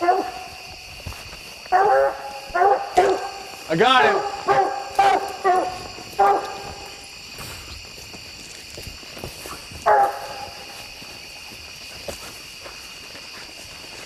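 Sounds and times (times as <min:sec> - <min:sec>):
hound barking: 0:00.0 - 0:00.6, 0:01.7 - 0:07.0, 0:09.8 - 0:10.7.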